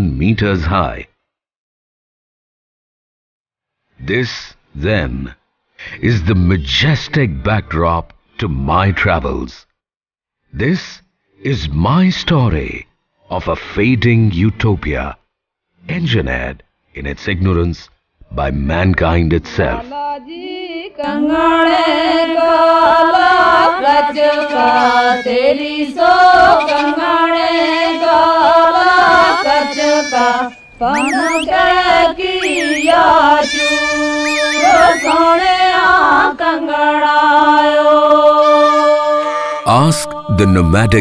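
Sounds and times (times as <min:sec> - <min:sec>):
solo voice singing slow melody: 0:37.0 - 0:41.0.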